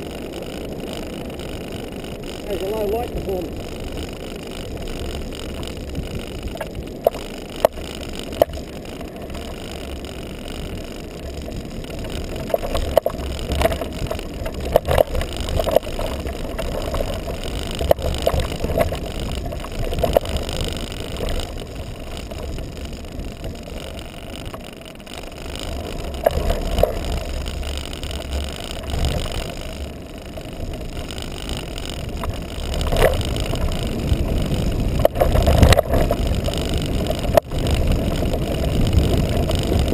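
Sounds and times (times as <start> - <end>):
tyres rumbling on sand: 0.0 - 39.9
wind on microphone: 25.3 - 39.9.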